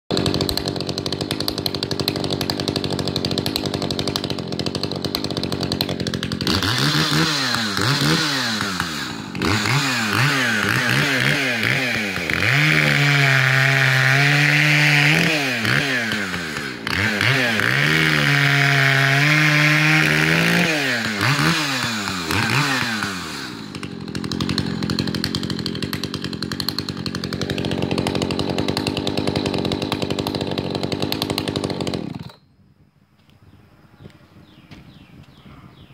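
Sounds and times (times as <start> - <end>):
chainsaw revving and idling: 0.1 - 32.4.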